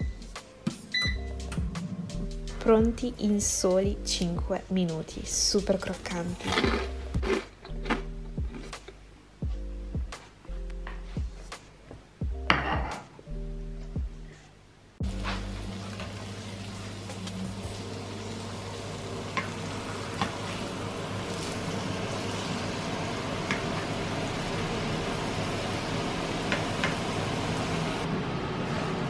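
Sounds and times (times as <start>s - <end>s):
meat sizzling in oil: 15.0s - 28.0s.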